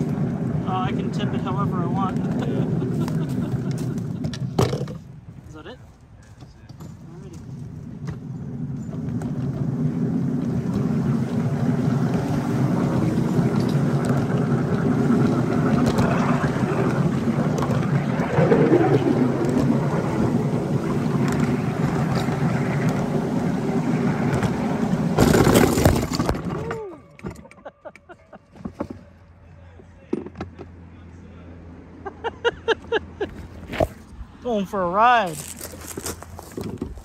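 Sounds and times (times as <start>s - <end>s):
train wheels rumbling on rails: 6.4s - 26.9s.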